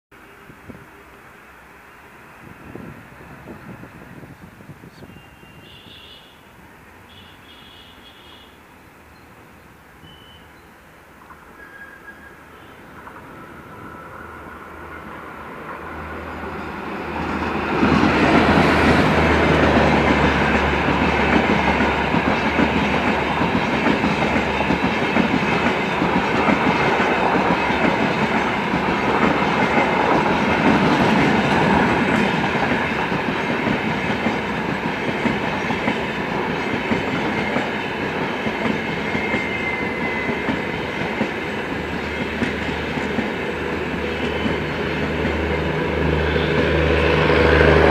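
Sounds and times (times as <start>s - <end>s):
train passing with rumble: 0.2s - 47.9s
wheels clacking on rail: 11.2s - 47.9s.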